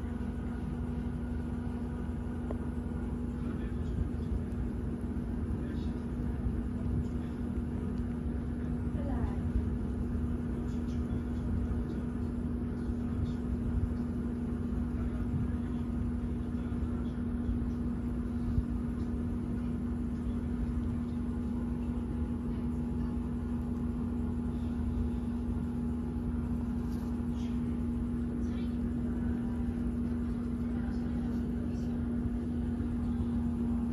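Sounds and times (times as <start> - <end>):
steady machine hum: 0.0 - 33.9.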